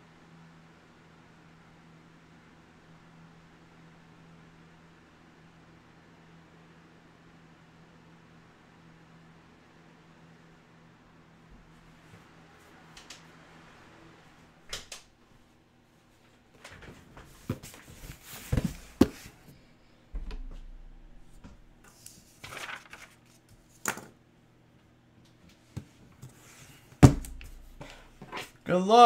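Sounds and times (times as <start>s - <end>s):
cardboard rustling: 17.2s - 19.5s, 20.4s - 23.8s
heavy thump: 20.1s - 21.8s.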